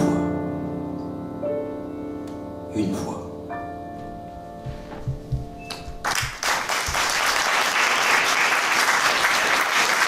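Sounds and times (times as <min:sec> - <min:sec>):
piano chord ringing: 0:00.0 - 0:06.0
audience applause: 0:06.0 - 0:10.0.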